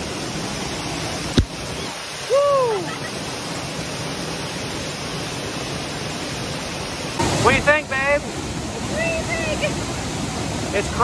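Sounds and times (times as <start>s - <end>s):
waterfall roaring: 0.0s - 11.0s
person exclaiming: 2.3s - 3.0s.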